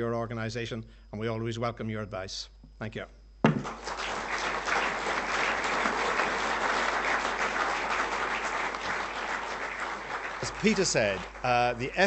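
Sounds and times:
people applauding: 3.5 - 12.0.

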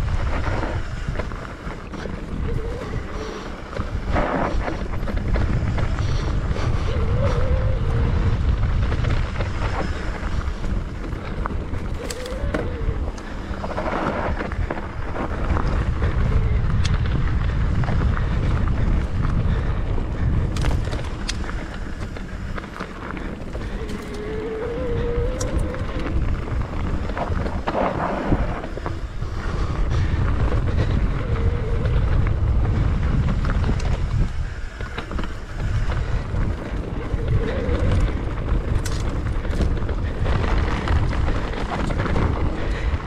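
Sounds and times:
bike clattering over rough trail: 0.0 - 43.0
wind buffeting microphone: 0.0 - 43.0.

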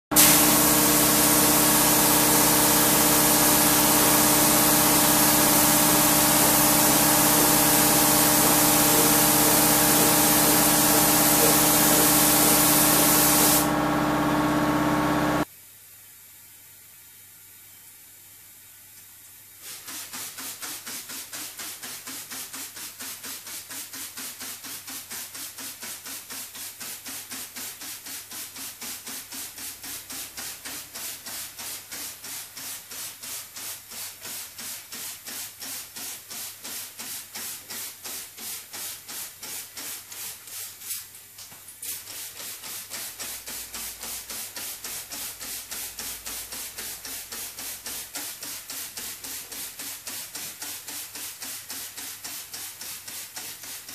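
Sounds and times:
spray bottle squirting: 0.2 - 13.8.

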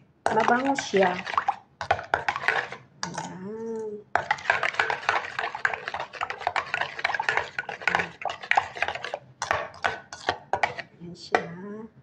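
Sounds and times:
spoon scraping metal bowl: 0.3 - 3.4, 4.2 - 11.5.

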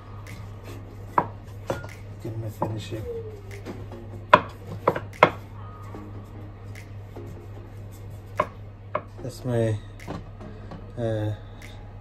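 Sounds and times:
rolling pin knocking on board: 4.3 - 5.4.

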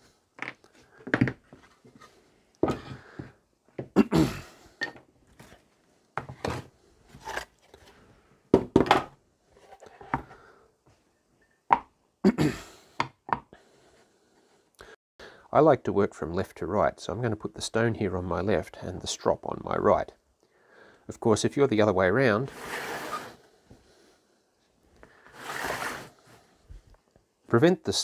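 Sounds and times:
wooden knocks on a benchtop: 8.5 - 9.1, 13.0 - 13.5.

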